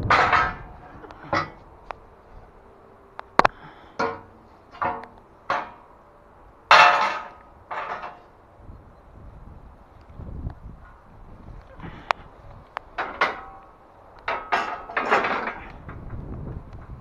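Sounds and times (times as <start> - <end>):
metal scaffold parts clanking: 0.0 - 1.8, 3.5 - 6.1, 6.7 - 8.4, 12.9 - 16.2.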